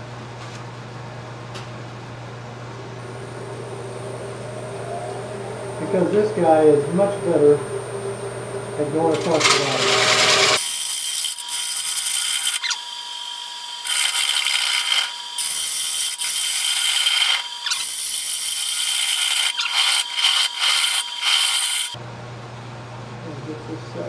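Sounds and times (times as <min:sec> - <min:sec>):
lathe high whine: 0:02.7 - 0:22.0
gouge cutting spinning wood: 0:09.0 - 0:22.0.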